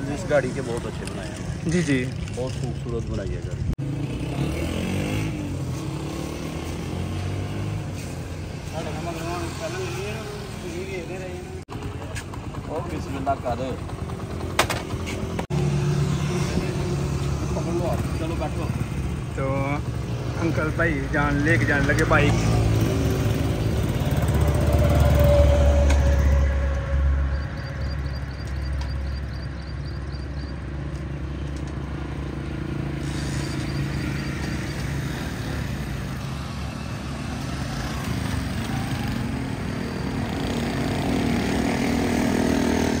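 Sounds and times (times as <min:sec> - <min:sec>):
motorcycle engine running: 0:11.6 - 0:16.9.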